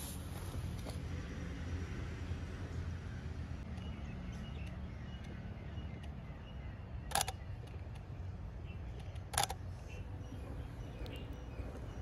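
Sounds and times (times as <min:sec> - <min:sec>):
steady low rumble: 0:00.0 - 0:12.0
camera shutter clicks: 0:07.1 - 0:07.4, 0:09.2 - 0:09.6.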